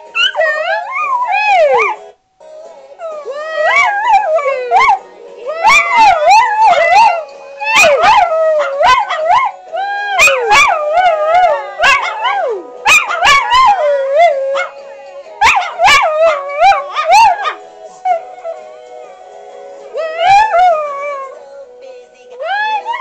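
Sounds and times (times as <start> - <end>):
small dogs howling and yipping: 0.2 - 2.0, 3.1 - 14.8, 15.4 - 18.6, 20.0 - 21.4
cartoon music: 3.0 - 14.8.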